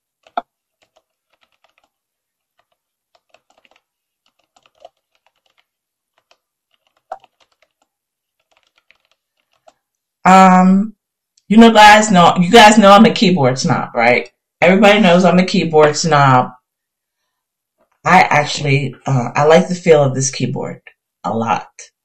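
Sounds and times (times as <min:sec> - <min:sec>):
clicky keyboard typing: 0:00.2 - 0:09.8.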